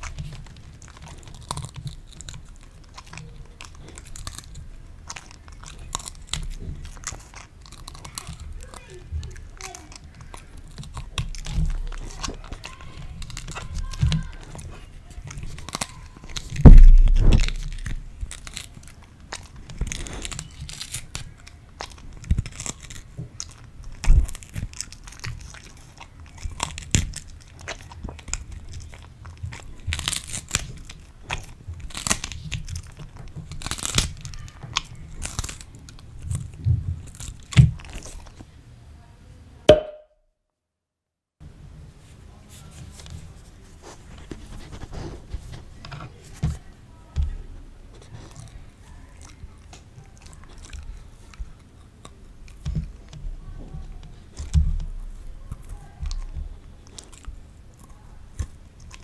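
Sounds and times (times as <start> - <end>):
dog crunching pea pods: 0.0 - 38.5, 42.7 - 59.0
loud low thump: 16.6 - 17.6.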